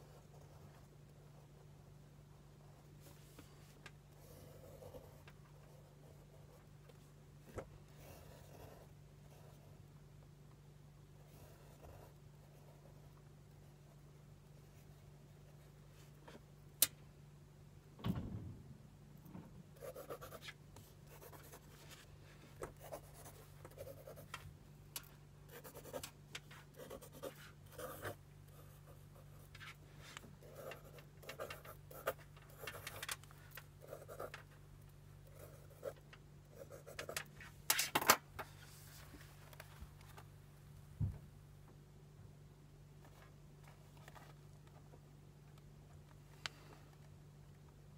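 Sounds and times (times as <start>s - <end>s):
faint low hum: 0.0s - 47.9s
pencil sketching on paper: 8.0s - 9.7s, 19.8s - 20.4s, 22.8s - 24.3s, 25.5s - 26.0s, 26.7s - 29.4s.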